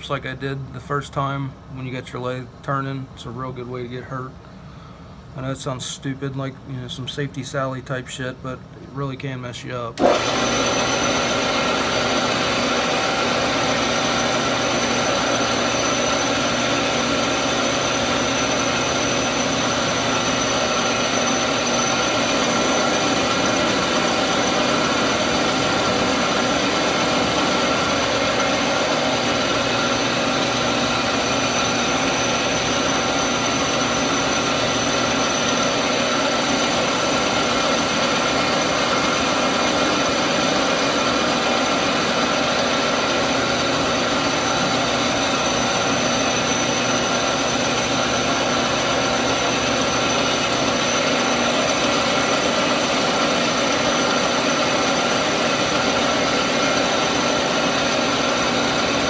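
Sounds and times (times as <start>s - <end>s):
metal lathe running: 10.0s - 59.0s.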